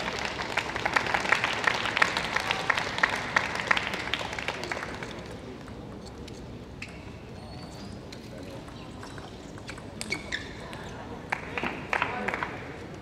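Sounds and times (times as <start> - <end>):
audience applauding: 0.0 - 5.3.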